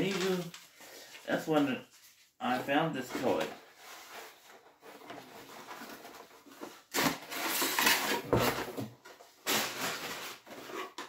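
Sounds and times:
cardboard scraping and rustling: 0:03.0 - 0:11.0.

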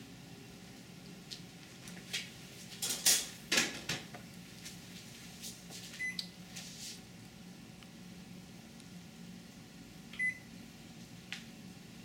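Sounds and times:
kitchen knocks and clunks: 0:02.8 - 0:04.2.

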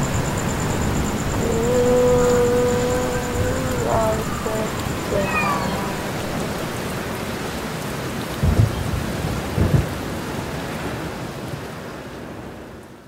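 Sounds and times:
low thunder rumbles: 0:00.0 - 0:10.3
steady rain: 0:00.0 - 0:13.0.

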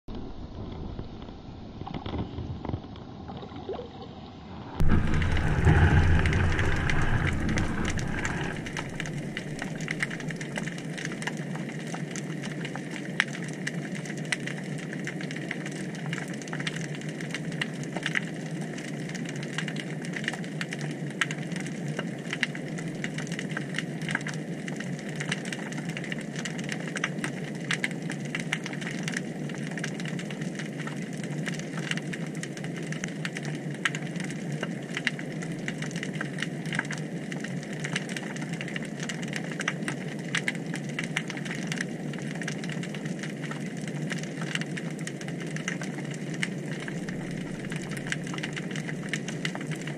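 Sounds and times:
rush of water: 0:02.0 - 0:11.2, 0:44.0 - 0:49.9
underwater hiss with crackling clicks: 0:04.8 - 0:49.9.

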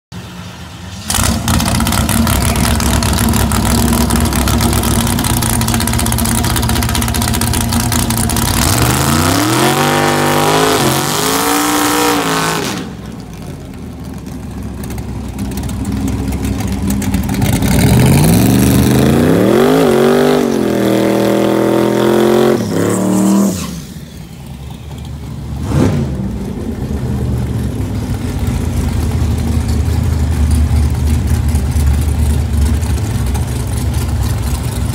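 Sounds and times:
engine revving: 0:01.0 - 0:13.2, 0:17.2 - 0:23.9, 0:25.6 - 0:26.6.

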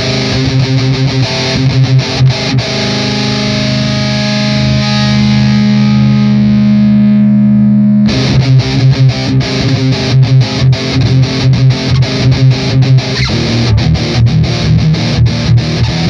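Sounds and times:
distorted electric guitar riff: 0:00.0 - 0:16.0
guitar chord ringing: 0:00.0 - 0:16.0.

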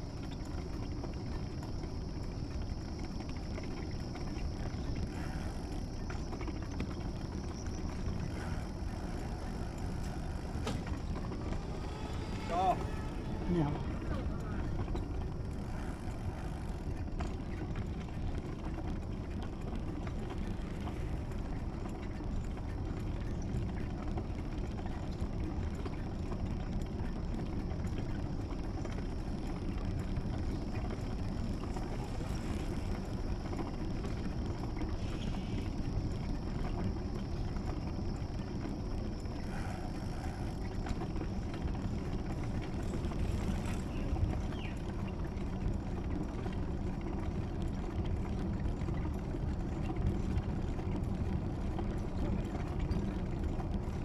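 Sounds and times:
wind and road movement rumble: 0:00.0 - 0:54.0.

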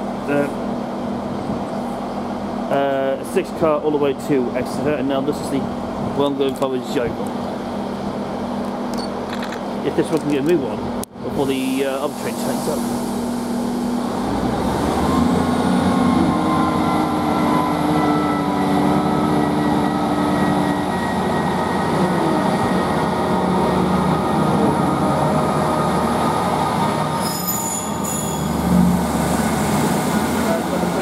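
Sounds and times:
diesel train engines humming: 0:00.0 - 0:31.0
wheels rumbling on rail: 0:00.0 - 0:31.0
high-pitched squeal: 0:15.0 - 0:31.0
faint high whistle: 0:27.2 - 0:28.5.

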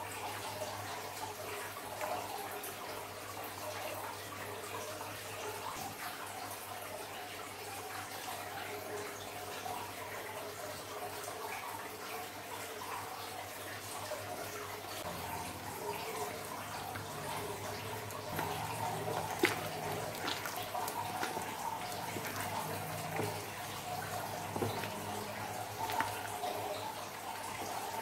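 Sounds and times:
wet slime squelching and sloshing: 0:14.3 - 0:28.0.

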